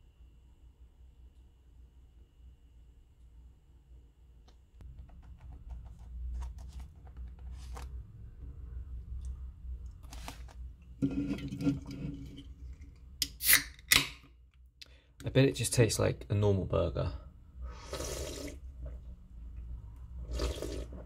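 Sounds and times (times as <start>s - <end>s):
can ring-pull cracking open: 13.2s - 14.2s.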